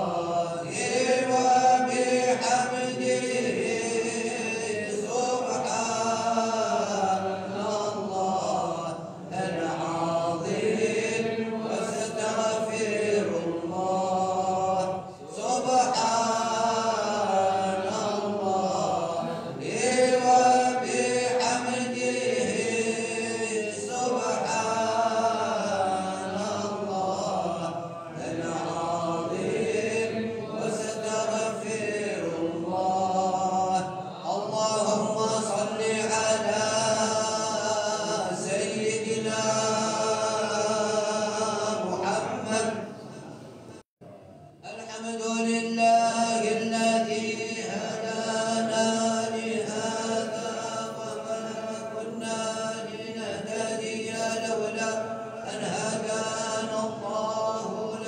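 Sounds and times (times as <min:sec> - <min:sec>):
voices chanting: 0:00.0 - 0:42.8.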